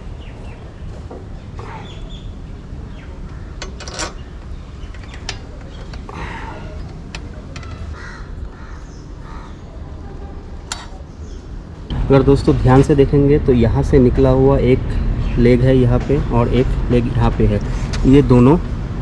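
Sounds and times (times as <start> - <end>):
crows cawing: 7.6 - 9.8.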